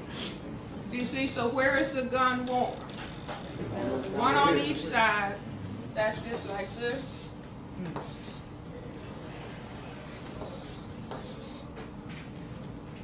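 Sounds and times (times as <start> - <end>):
chalk scraping on blackboard: 6.1 - 7.4, 8.0 - 8.5, 9.2 - 11.8.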